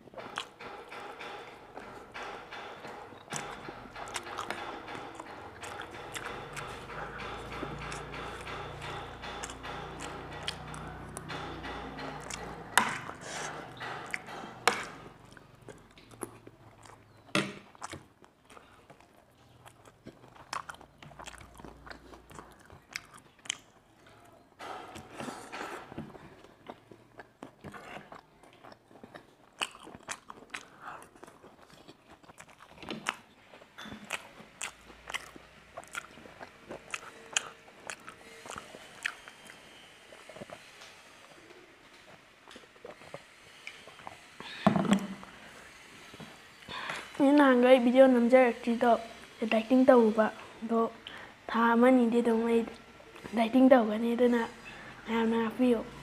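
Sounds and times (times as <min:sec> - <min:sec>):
chewing: 0:00.2 - 0:44.4.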